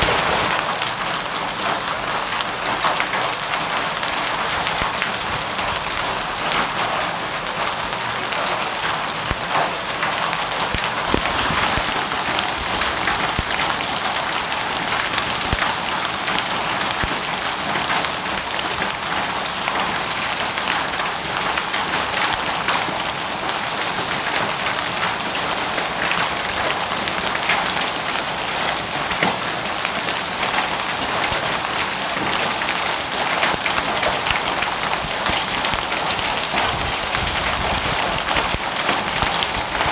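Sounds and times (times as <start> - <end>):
heavy rain hiss: 0.0 - 17.4
hailstones striking ground: 0.0 - 39.9.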